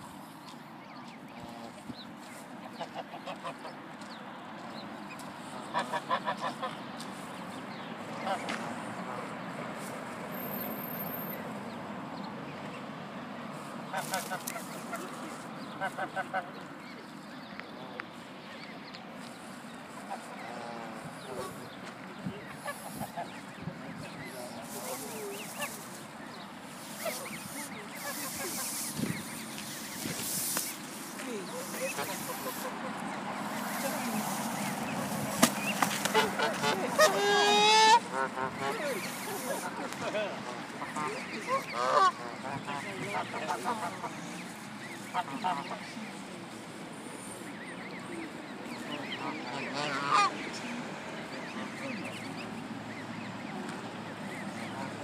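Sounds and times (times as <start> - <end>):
outdoor background noise: 0.0 - 55.0
waterfowl calls: 1.3 - 3.8, 5.1 - 7.1, 8.0 - 9.3, 13.6 - 17.0, 18.6 - 55.0
goose honking: 5.7 - 6.8, 13.8 - 16.6, 20.0 - 21.7, 22.5 - 23.4, 26.7 - 46.0, 48.8 - 50.6.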